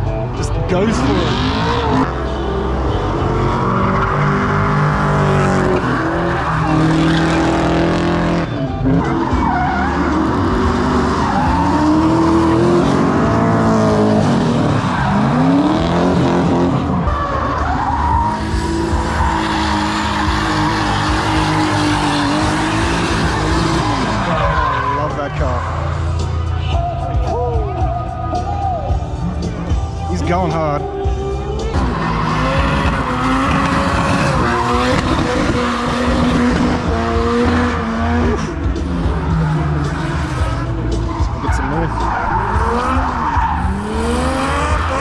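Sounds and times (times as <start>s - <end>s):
car engines revving hard: 0.0s - 45.0s
tyres screeching: 31.8s - 45.0s.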